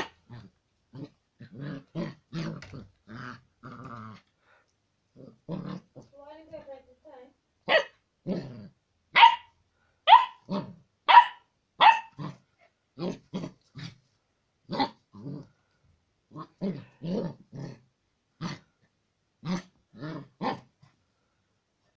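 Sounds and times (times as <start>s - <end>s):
puppy barking: 0.0s - 0.2s, 7.6s - 8.0s, 9.1s - 12.4s.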